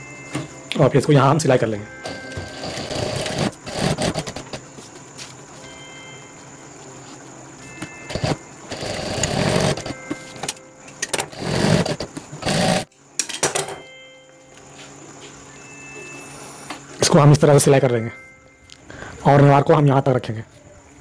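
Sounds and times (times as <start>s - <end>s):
sewing machine hum: 2.0s - 4.6s, 8.1s - 10.2s, 11.1s - 12.9s
sewing machine stitching: 2.0s - 4.6s, 8.1s - 10.0s, 11.1s - 12.9s.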